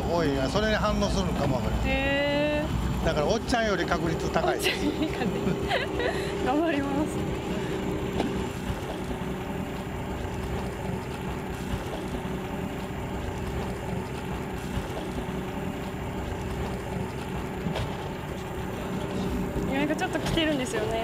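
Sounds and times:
boat engine running: 0.0s - 21.0s.

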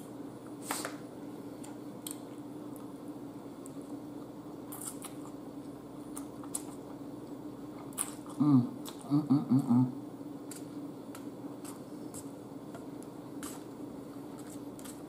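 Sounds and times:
steady low hum: 0.0s - 15.0s
person chewing spaghetti: 3.6s - 9.1s, 10.4s - 15.0s.

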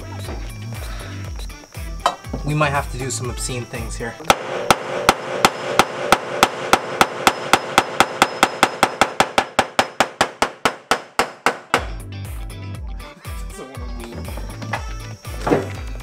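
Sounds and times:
hammer striking sheet metal: 4.3s - 11.9s.

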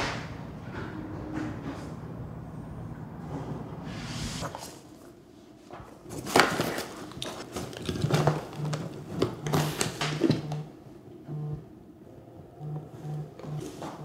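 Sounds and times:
papers rustling: 4.4s - 10.5s
mobile phone vibrating in handbag: 8.6s - 10.7s, 12.6s - 14.0s.

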